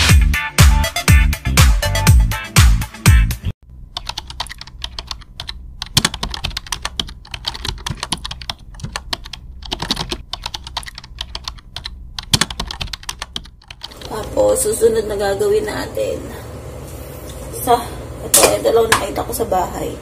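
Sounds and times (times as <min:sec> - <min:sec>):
computer keyboard typing clicks: 0:04.0 - 0:14.1.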